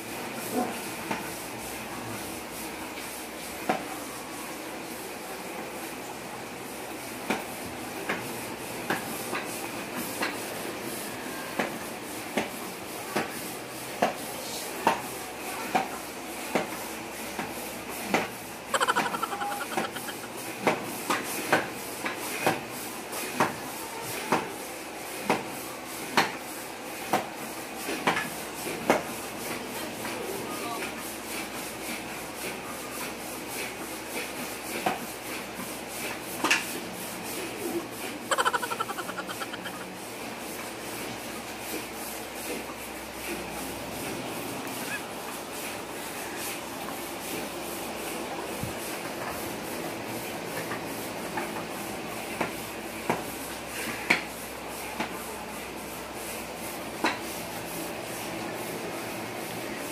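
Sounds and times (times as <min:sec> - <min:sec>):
hand air pump strokes: 0:17.4 - 0:21.6, 0:31.2 - 0:46.6.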